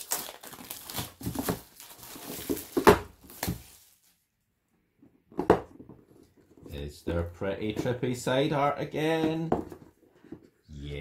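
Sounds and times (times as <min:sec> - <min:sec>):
plastic shrink wrap crinkling: 0:00.0 - 0:04.2.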